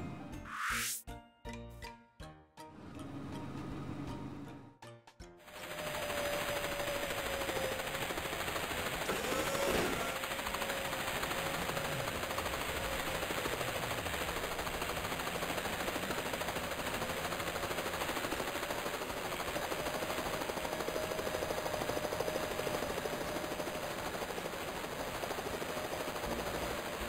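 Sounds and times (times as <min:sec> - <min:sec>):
helicopter rotor chop: 0:05.4 - 0:27.0.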